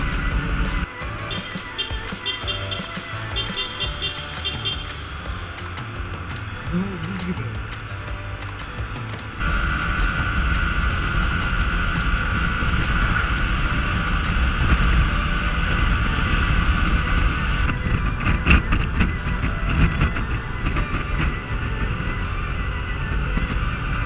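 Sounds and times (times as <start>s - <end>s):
scooter engine running: 0.0s - 24.0s
steady whine: 0.0s - 24.0s
wind buffeting with clicks: 7.6s - 24.0s
wind rushing over microphone: 9.4s - 24.0s.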